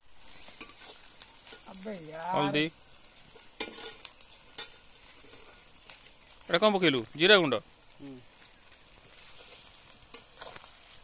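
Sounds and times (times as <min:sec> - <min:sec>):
low sizzle: 0:00.0 - 0:11.0
metal spatula scraping a pan: 0:00.2 - 0:01.8, 0:03.2 - 0:05.8, 0:09.0 - 0:11.0.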